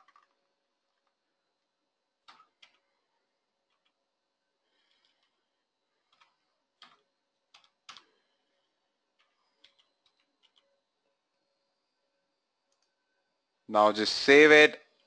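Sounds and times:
faint keyboard keystrokes: 6.0 - 8.2, 9.2 - 10.7.

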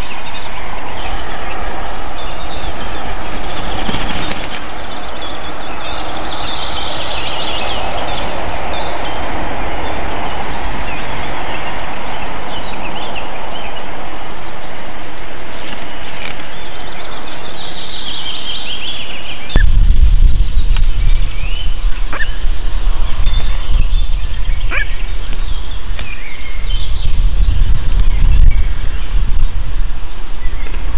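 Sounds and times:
loud rushing noise: 0.0 - 17.3.

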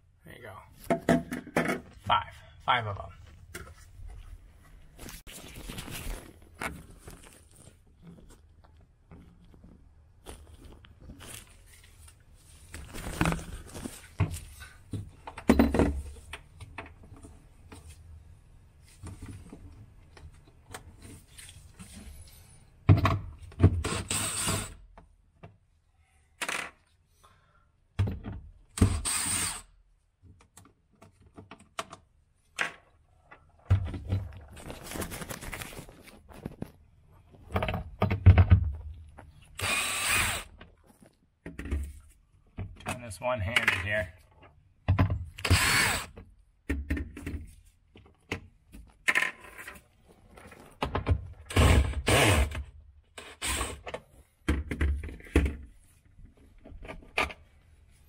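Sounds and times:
cordless drill running: 29.0 - 29.6, 39.6 - 40.5, 45.4 - 46.1.

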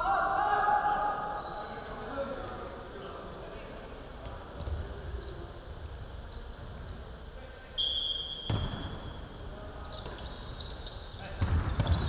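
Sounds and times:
sneakers squeaking on court floor: 2.7 - 7.2, 7.8 - 12.0
referee's whistle: 7.8 - 8.9
sharp ball bounce: 11.4 - 12.0.

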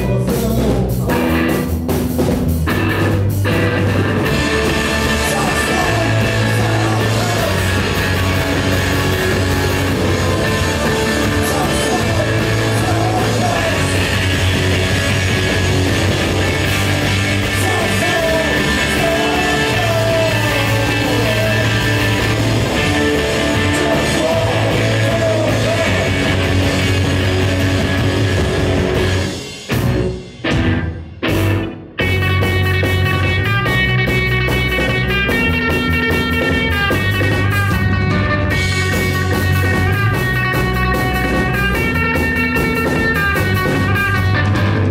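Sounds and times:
man singing: 0.0 - 1.7, 4.4 - 8.5, 10.0 - 15.0, 17.2 - 26.7
bass guitar: 0.0 - 44.9
drums: 0.0 - 44.9
electric guitar: 0.0 - 44.9.

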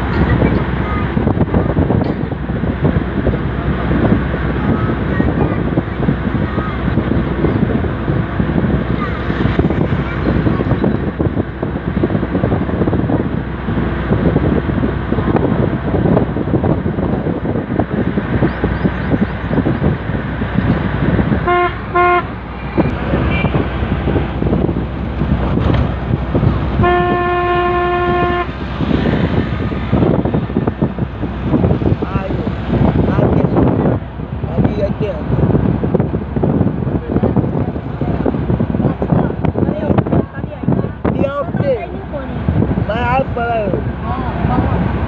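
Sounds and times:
vehicle road noise: 0.0 - 45.0
wind rush through open window: 0.0 - 45.0
vehicle horn toots: 21.4 - 22.3, 26.8 - 28.6.

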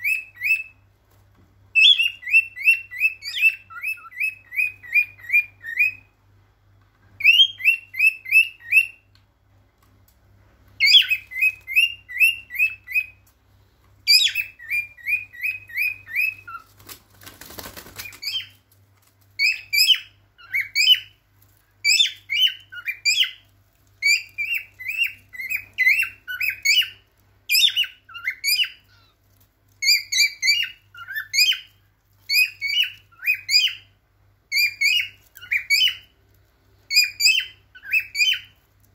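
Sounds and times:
cockatiel whistling song: 0.0 - 0.8, 1.7 - 6.2, 7.2 - 9.1, 10.8 - 13.2, 14.0 - 16.7, 18.0 - 18.6, 19.4 - 21.2, 21.8 - 29.2, 29.8 - 36.2, 36.9 - 38.6.

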